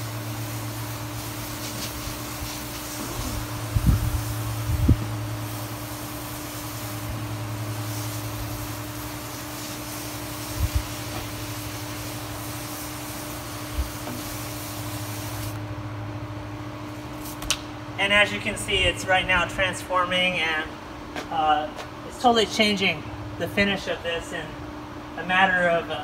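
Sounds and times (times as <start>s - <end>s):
spray hissing on wooden fence: 0.0s - 15.7s
pressure washer humming: 0.0s - 15.8s.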